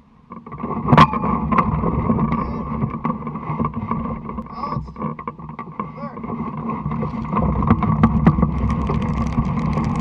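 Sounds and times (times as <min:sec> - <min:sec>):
wind buffeting microphone: 0:06.1 - 0:10.0.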